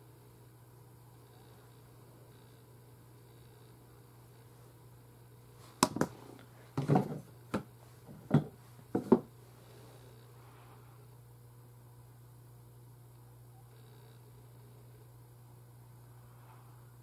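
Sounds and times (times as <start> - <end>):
faint low hum: 0.0 - 17.0.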